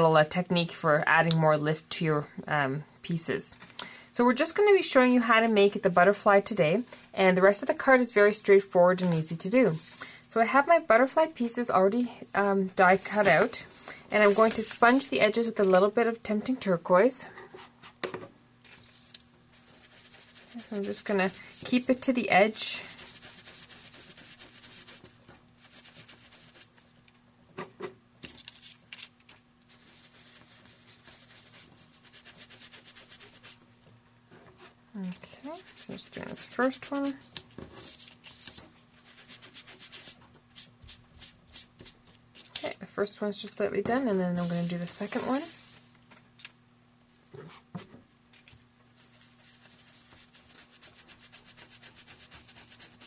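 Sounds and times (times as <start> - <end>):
faint steady hum: 0.0 - 53.0
ink sponge dabbing paper: 14.1 - 15.5, 19.5 - 26.7, 29.7 - 33.6, 35.5 - 38.0, 39.0 - 42.0, 43.9 - 45.8, 49.0 - 53.0
paper handling: 14.2 - 15.1, 37.2 - 38.8.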